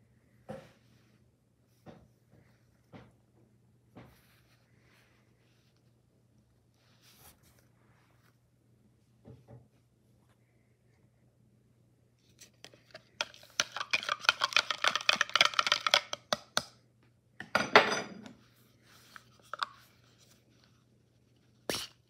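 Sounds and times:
utensil clatter: 12.9 - 16.4
utensil clinking in cup: 12.9 - 16.4.

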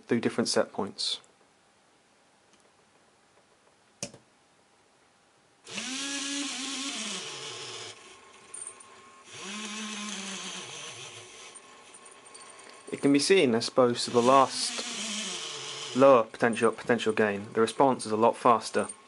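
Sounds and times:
gearmotor whining: 5.7 - 12.9, 14.0 - 16.2.

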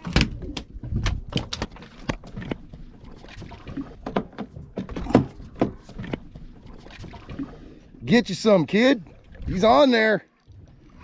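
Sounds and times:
gear knocks and clicks: 0.0 - 7.3.

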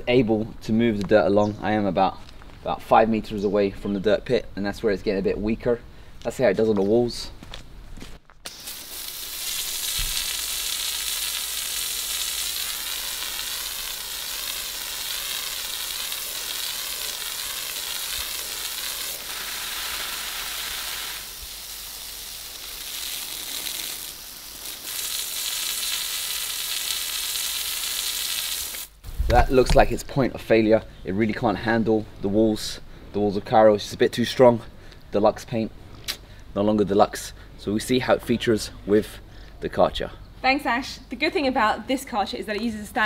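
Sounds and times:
hose spray hissing on wall: 8.4 - 29.8.

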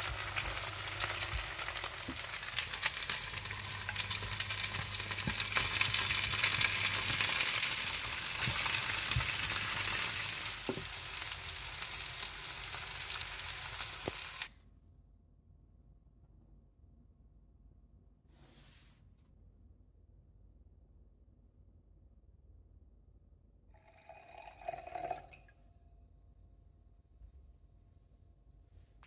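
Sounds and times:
food sizzling in hot oil: 0.0 - 14.5.

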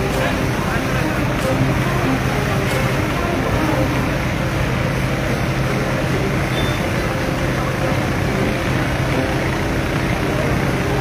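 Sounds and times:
fire engine pump humming: 0.0 - 11.0.

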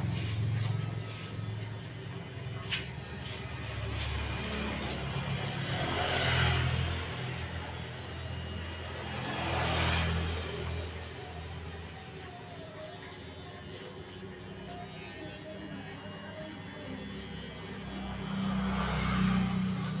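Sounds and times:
passing road traffic: 0.0 - 12.2, 17.4 - 20.0
hair clipper buzzing: 14.6 - 20.0.

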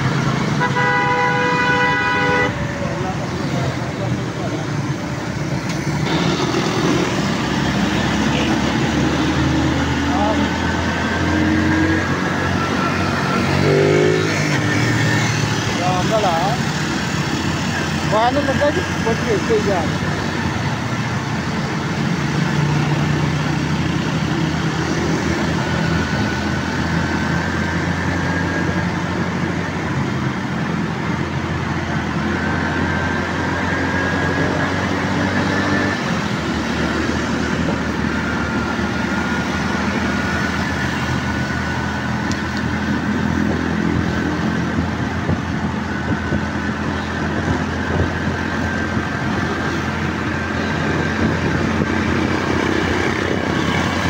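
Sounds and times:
passing cars and motorcycles: 0.0 - 54.0.

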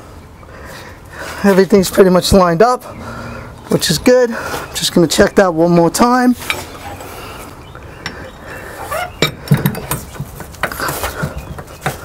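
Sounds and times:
light metal clinks and knocks: 9.2 - 10.9.

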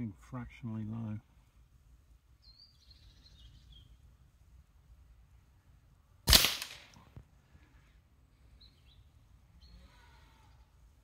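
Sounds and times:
suppressed rifle shot: 6.3 - 7.0.

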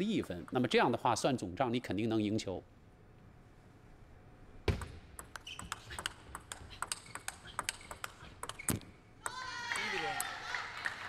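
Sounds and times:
table tennis ball clicking: 4.7 - 10.3.

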